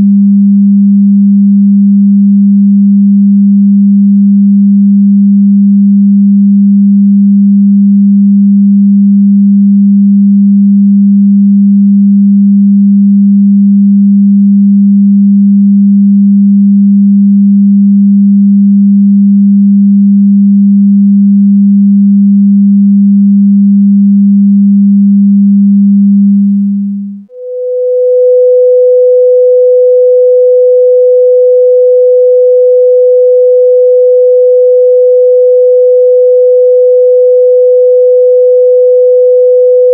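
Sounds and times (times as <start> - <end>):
higher sine-wave test tone: 0.0 - 39.9
low sine-wave test tone: 0.0 - 39.9.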